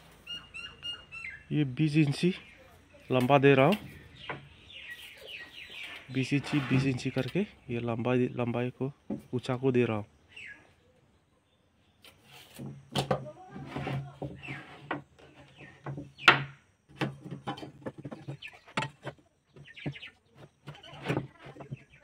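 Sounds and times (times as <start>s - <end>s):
boards knocking on wooden bench: 3.7s - 4.6s, 12.6s - 22.0s.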